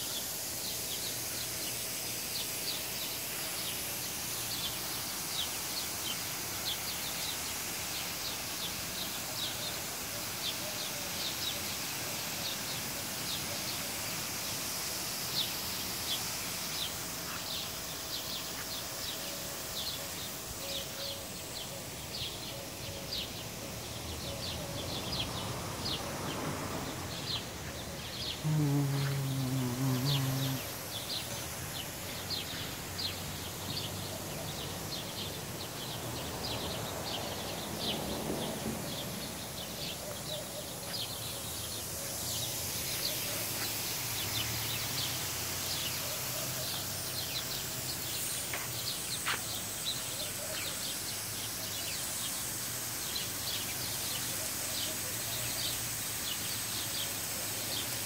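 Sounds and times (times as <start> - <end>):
steady high hiss: 0.0 - 58.0
small birds chirping: 15.2 - 58.0.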